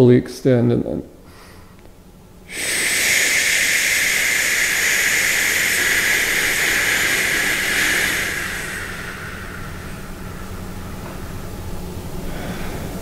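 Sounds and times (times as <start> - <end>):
man exhaling hissing shh: 2.5 - 13.0.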